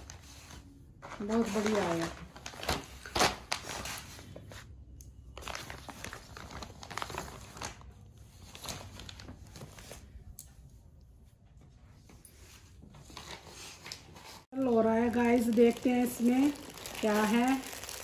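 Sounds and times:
plastic cover crinkling and rustling: 0.0 - 4.6, 5.3 - 10.1, 13.0 - 18.0.

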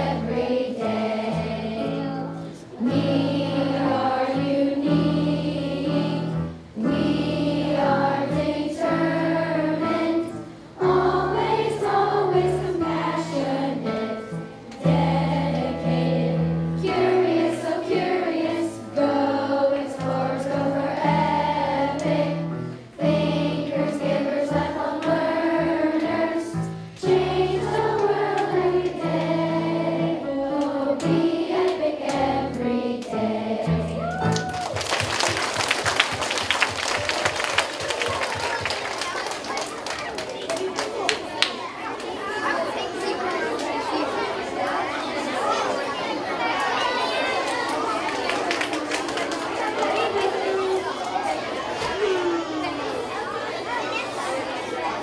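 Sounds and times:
children singing: 0.0 - 34.1.

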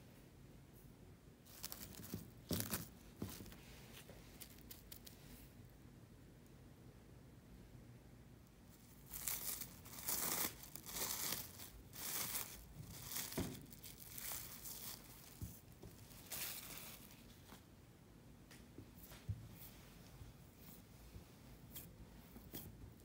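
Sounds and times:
cling film crinkling: 8.8 - 17.4.

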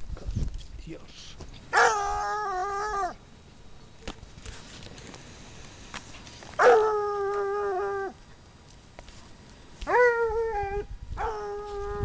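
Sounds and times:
hound baying: 1.7 - 3.2, 6.6 - 8.2.

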